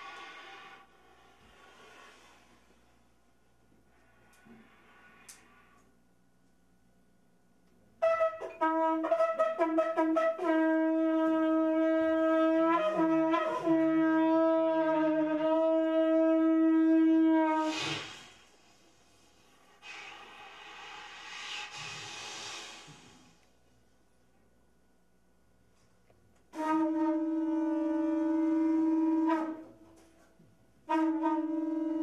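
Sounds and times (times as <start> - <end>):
breathy hiss: 0.0 - 6.0, 17.6 - 23.6
wind instrument notes: 8.0 - 18.3, 26.5 - 30.2, 30.9 - 32.0.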